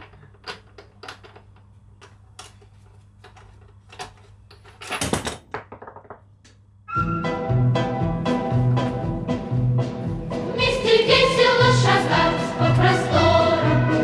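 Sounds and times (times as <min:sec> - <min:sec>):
background music with steady beat: 0:06.9 - 0:14.0.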